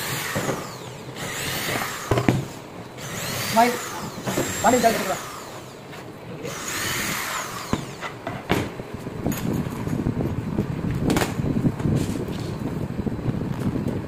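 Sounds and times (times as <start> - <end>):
electric hand drill whirring: 0.0 - 8.2.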